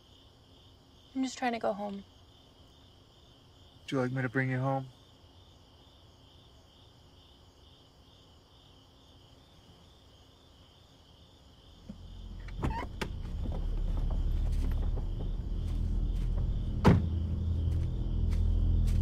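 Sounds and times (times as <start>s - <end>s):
crickets chirping: 0.0s - 19.0s
low rumble: 12.0s - 19.0s.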